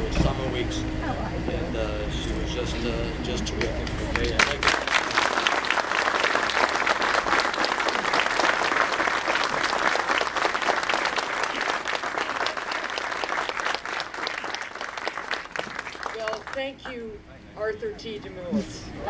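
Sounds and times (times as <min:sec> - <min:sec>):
crowd applauding: 0:03.6 - 0:16.7.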